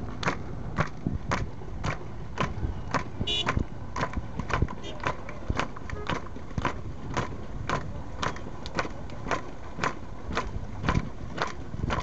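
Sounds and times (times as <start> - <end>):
crowd clapping in rhythm: 0.2 - 9.2.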